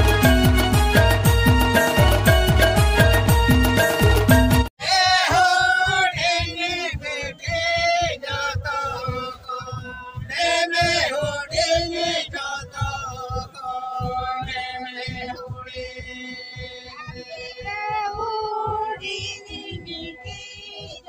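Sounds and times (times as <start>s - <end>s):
steady low beat: 0.0s - 21.0s
men singing in chanting style: 4.8s - 17.9s.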